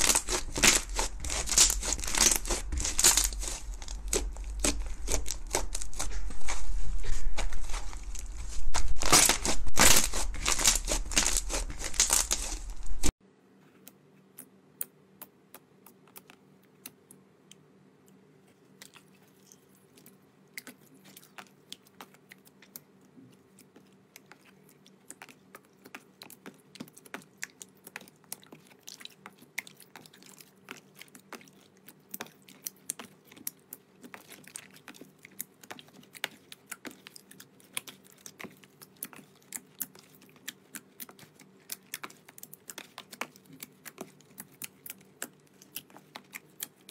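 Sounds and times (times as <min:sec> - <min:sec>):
slime crackling between fingers: 0:00.0 - 0:06.6, 0:07.7 - 0:13.1.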